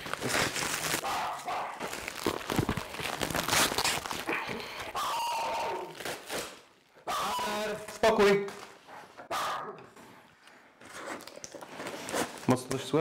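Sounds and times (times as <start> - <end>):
plastic bag crinkling: 0.0 - 5.0
dog barking: 1.0 - 1.8, 9.3 - 9.9.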